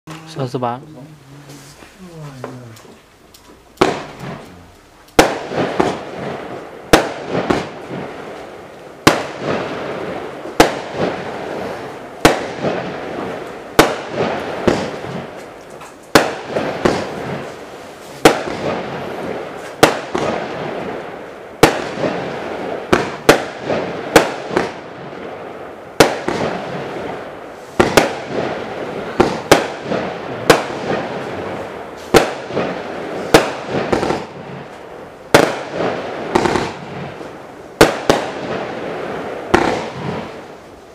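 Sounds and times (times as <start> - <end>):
fireworks reports: 0.1 - 3.0, 3.8 - 21.0, 25.9 - 40.9
small fireworks pops: 2.4 - 6.3, 6.9 - 9.6, 12.2 - 22.2, 22.9 - 25.2, 25.9 - 28.5, 29.1 - 38.7, 39.5 - 40.6.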